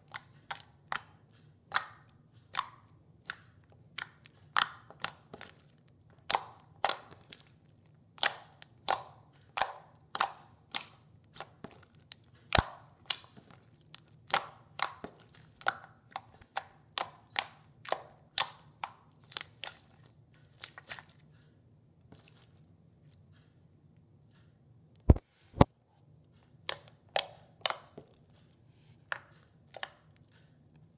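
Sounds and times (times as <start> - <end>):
slime popping and clicking: 8.2 - 11.6.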